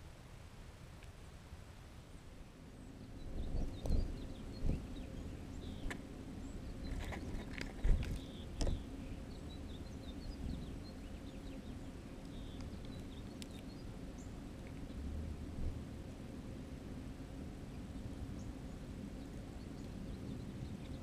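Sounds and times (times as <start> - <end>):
songbirds twittering: 2.1 - 15.2, 17.7 - 21.0.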